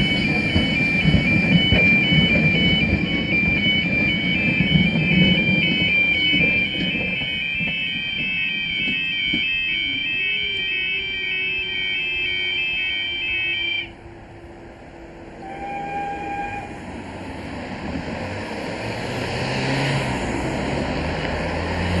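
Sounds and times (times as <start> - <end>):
two-tone crossing alarm warble: 0.0 - 14.0
cars driving over crossing: 16.7 - 22.0.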